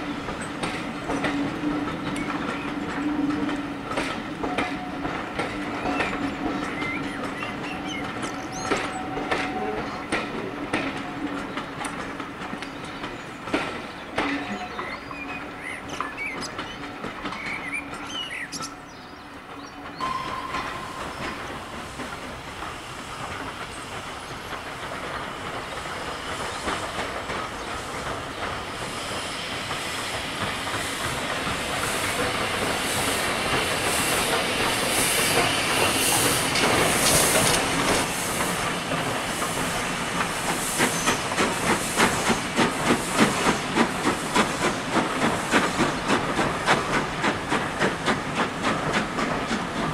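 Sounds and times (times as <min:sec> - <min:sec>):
steam locomotive chuffing: 0:00.0 - 0:49.9
hiss of steam: 0:20.3 - 0:49.9.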